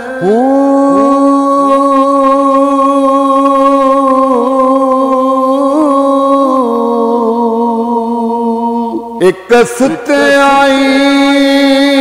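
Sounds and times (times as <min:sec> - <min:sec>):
man singing: 0:00.0 - 0:12.0.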